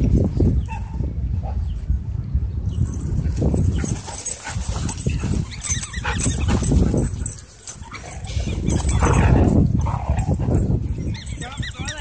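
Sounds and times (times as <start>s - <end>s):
dogs vocalizing: 3.7s - 12.0s.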